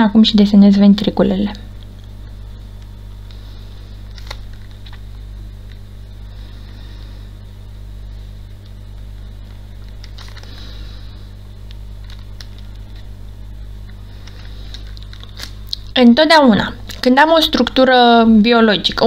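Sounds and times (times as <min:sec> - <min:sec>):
electrical hum: 0:00.0 - 0:19.0
faint clicks and scratches: 0:11.6 - 0:13.2.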